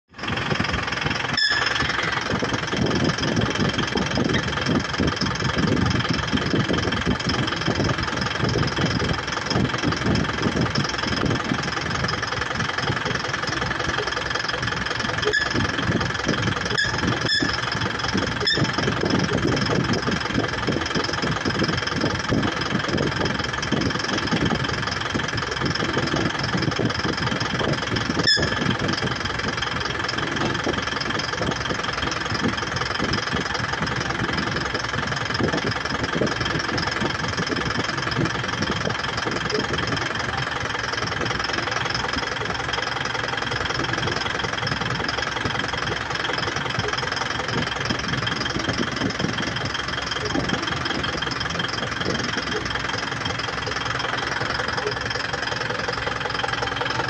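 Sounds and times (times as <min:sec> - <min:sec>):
truck engine idling: 0:00.1 - 0:57.0
high whine: 0:00.6 - 0:04.4.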